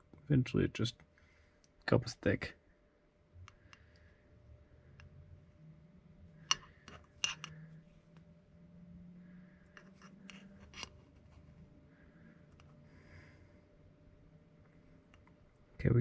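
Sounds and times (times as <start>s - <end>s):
metal fork scraping glass jar: 7.2s - 7.5s.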